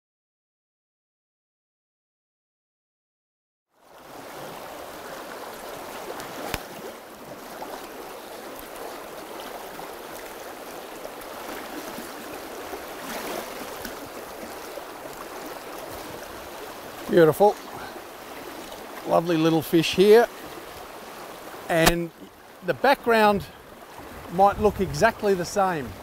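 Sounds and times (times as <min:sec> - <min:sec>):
river running over rocks: 0:03.8 - 0:25.8
sharp click: 0:21.8 - 0:22.0.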